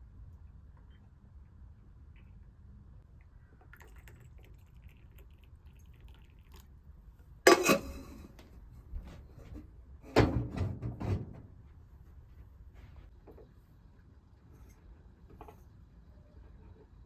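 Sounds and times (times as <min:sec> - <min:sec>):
water trickling into glasses: 0:03.2 - 0:06.8.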